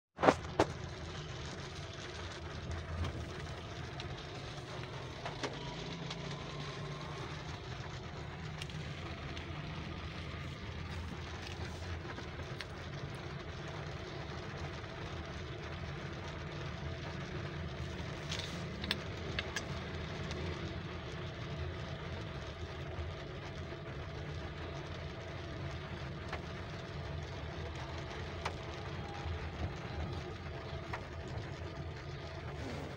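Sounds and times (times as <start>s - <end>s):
car engine running: 0.2s - 32.9s
rain hiss on car: 0.2s - 32.9s.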